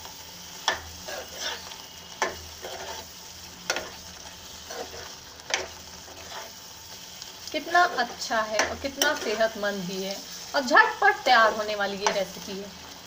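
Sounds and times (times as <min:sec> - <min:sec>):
faint sizzle: 0:00.0 - 0:13.0
spoon scraping in pan: 0:00.6 - 0:10.6.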